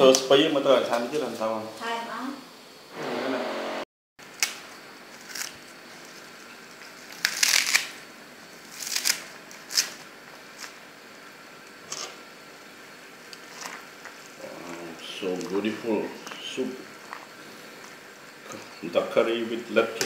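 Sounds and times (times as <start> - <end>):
lettuce leaves rustling: 4.3 - 10.8, 13.4 - 18.0.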